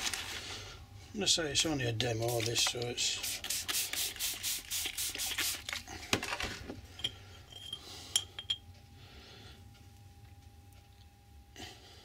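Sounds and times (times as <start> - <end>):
small metallic clinks: 7.0 - 8.7.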